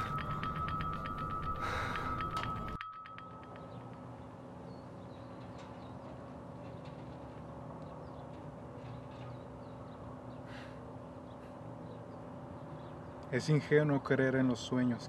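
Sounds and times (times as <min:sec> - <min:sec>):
small birds chirping: 0:03.4 - 0:14.9.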